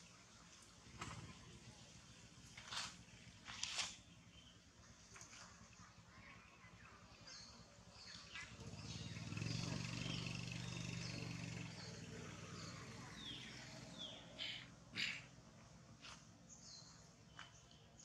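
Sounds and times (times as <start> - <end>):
low engine hum: 0.4 - 17.8
birds chirping: 3.9 - 18.0.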